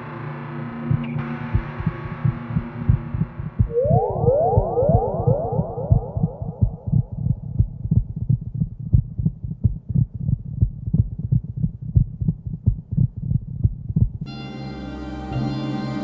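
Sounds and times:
sustained synthesizer music: 0.0s - 7.4s, 14.3s - 16.0s
heartbeat thumps: 0.9s - 14.3s.

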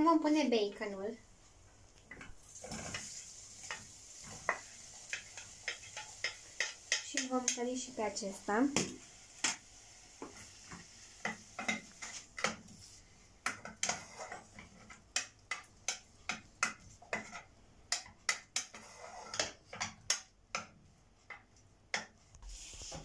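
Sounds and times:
bacon sizzling: 1.4s - 17.2s
wooden spoon scraping a pan: 2.1s - 23.0s.

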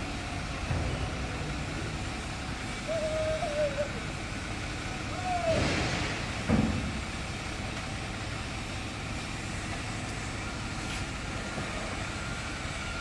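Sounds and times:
diesel truck engine running: 0.0s - 13.0s
thud: 5.6s - 7.0s.

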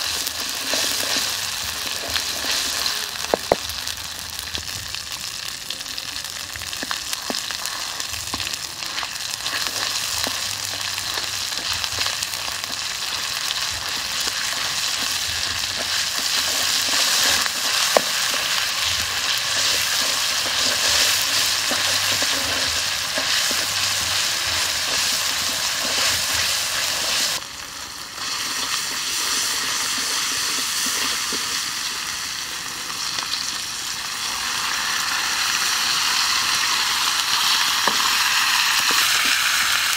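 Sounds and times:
wooden spoon scraping a wok: 0.0s - 3.6s, 6.8s - 27.4s
oil sizzling in a wok: 0.0s - 39.9s.

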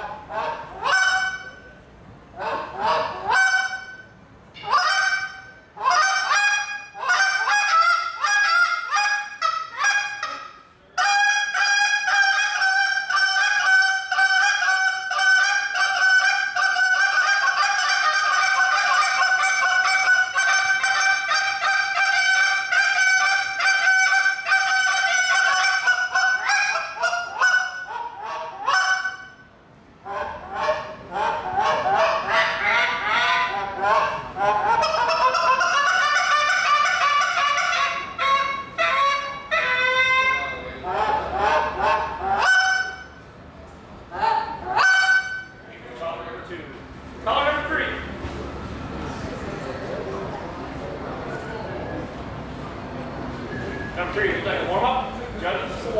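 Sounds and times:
goose call honks and clucks: 0.0s - 1.7s, 2.4s - 43.2s, 44.1s - 45.6s.

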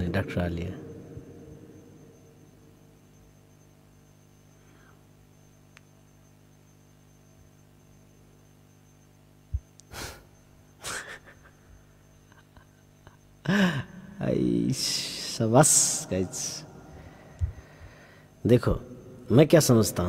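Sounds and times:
low steady hum: 0.0s - 20.0s
man laughing under his breath: 9.9s - 14.0s.

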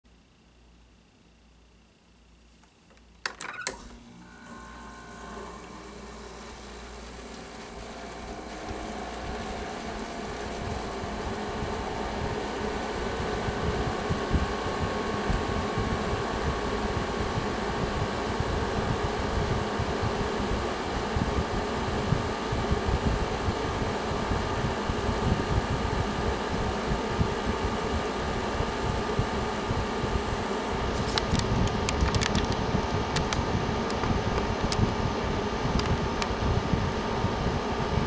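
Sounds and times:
air conditioner fan whirring: 0.1s - 38.0s
air conditioner clicks: 30.9s - 36.5s.

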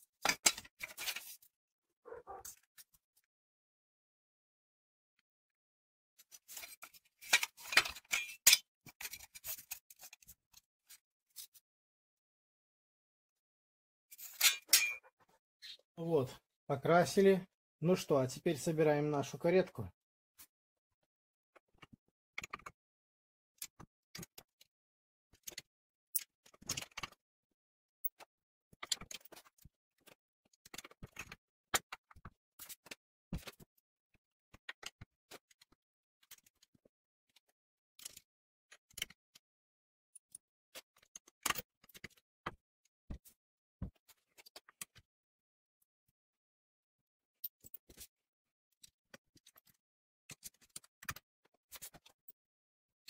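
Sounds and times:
steel parts clicking and knocking: 6.6s - 9.3s, 14.2s - 15.1s.

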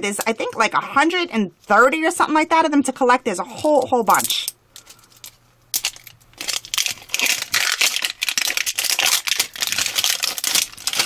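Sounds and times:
plastic wrapper crinkling and tearing: 4.2s - 11.0s.

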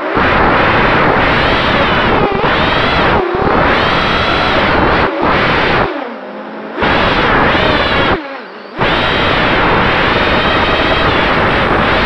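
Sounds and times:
drone motors whining: 0.0s - 12.0s
prop wash on microphone: 8.8s - 12.0s.

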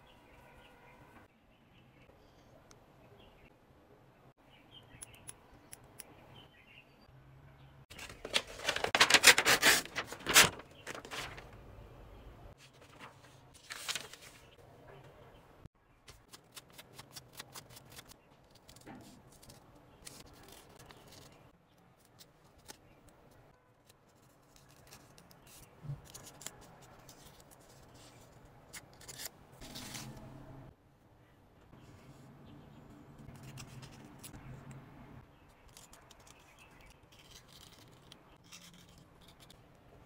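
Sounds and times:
scissors snipping paper: 8.2s - 11.3s, 16.1s - 21.4s, 35.6s - 39.6s.

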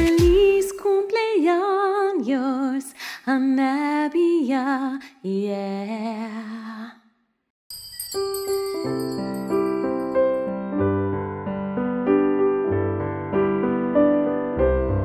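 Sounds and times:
woman singing with vibrato: 0.0s - 7.0s.

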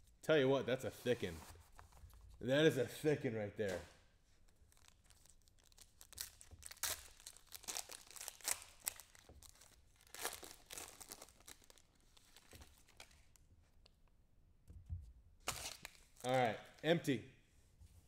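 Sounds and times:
foil wrapper tearing and crinkling: 4.7s - 13.4s, 15.5s - 16.2s.

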